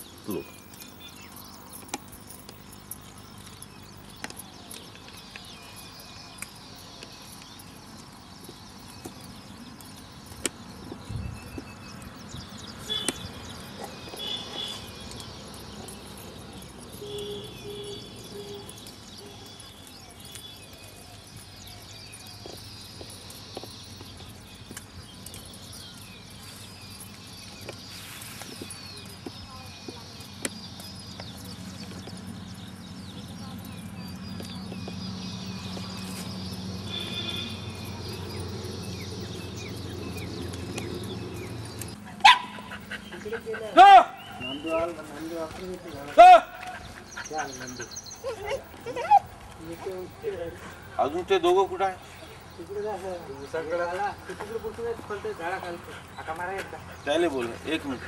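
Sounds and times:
birds calling: 0:00.0 - 0:58.0
insects chirping: 0:00.0 - 0:58.0
dog bark: 0:42.2 - 0:42.9.

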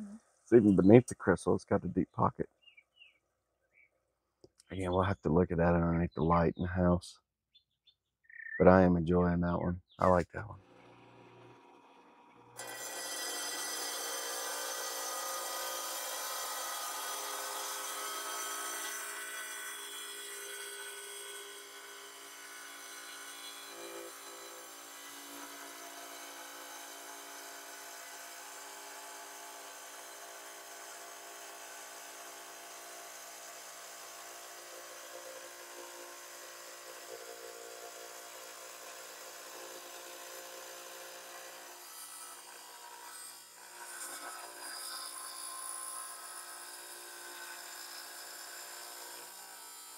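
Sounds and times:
diamond saw cutting stone: 0:10.7 - 0:49.9.

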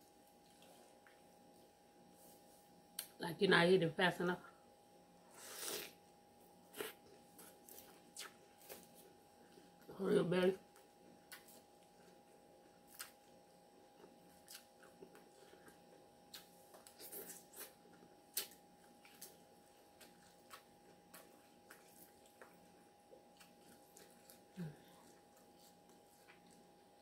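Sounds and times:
faint steady hum: 0:00.0 - 0:27.0
chewing: 0:00.4 - 0:01.2, 0:10.7 - 0:26.9.

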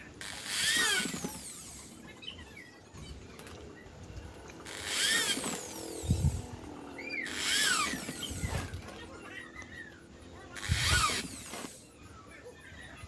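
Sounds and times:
electric drill boring through plastic: 0:00.0 - 0:02.0, 0:04.6 - 0:06.6, 0:07.2 - 0:08.9, 0:10.6 - 0:11.9.

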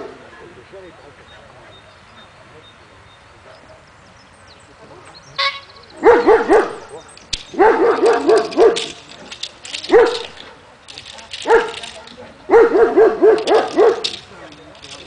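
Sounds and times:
dog barking high-pitched: 0:06.0 - 0:06.8, 0:07.6 - 0:09.0, 0:09.9 - 0:10.6, 0:12.5 - 0:14.1.

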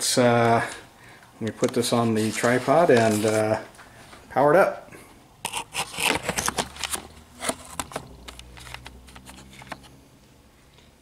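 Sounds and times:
camera handling clicks and rattles: 0:05.5 - 0:09.8.

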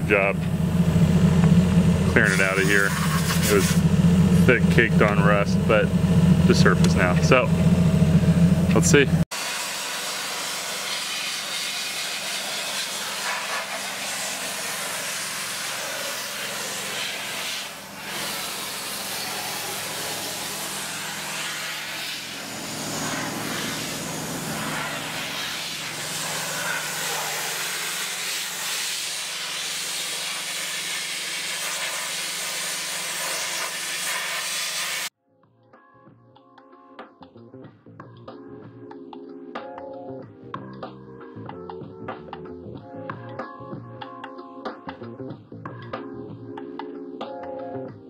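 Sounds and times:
sandblaster hissing: 0:02.2 - 0:03.9, 0:09.3 - 0:35.1.

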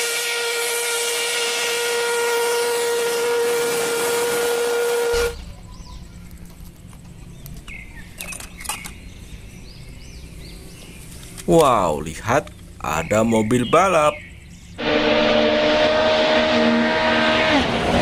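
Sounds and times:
steam hissing: 0:00.0 - 0:05.5, 0:14.8 - 0:18.0
steam whistle blast: 0:00.0 - 0:05.5, 0:14.8 - 0:18.0.

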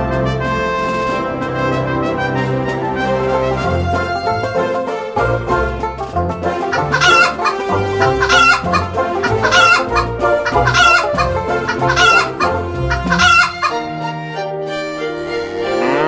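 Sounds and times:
background music with bass line: 0:00.0 - 0:16.0
hen clucking: 0:06.6 - 0:13.9.

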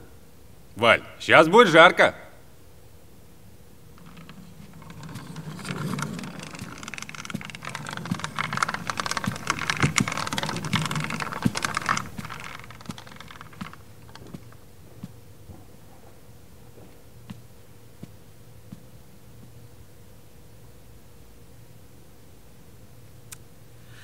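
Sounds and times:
metal clothes rack rattling: 0:04.0 - 0:14.6.

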